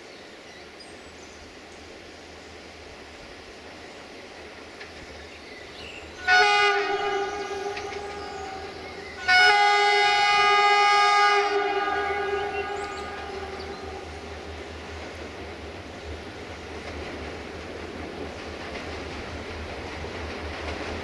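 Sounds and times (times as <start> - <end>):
train horn blasts: 6.2 - 14.5.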